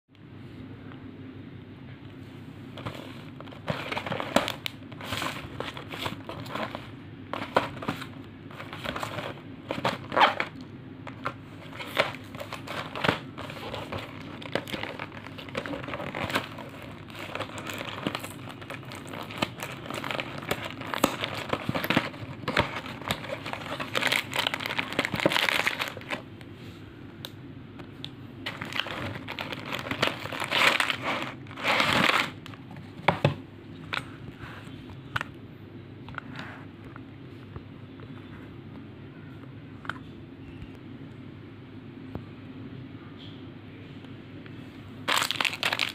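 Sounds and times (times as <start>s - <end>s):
plastic wrapper crinkling: 2.8s - 26.3s, 28.4s - 32.6s, 45.0s - 45.9s.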